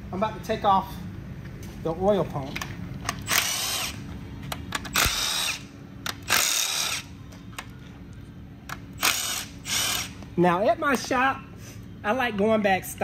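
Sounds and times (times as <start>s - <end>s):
cordless impact wrench whine: 3.0s - 7.7s, 8.7s - 10.2s.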